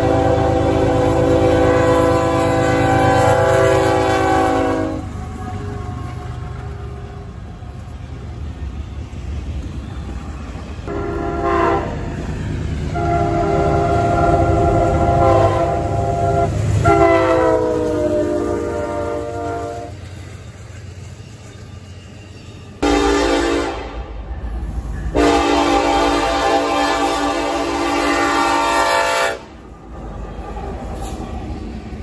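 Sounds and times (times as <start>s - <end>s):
locomotive air horn: 0.0s - 7.2s, 10.9s - 12.1s, 12.9s - 20.0s, 22.8s - 24.1s, 25.1s - 29.6s
passing train rumble: 0.0s - 32.0s.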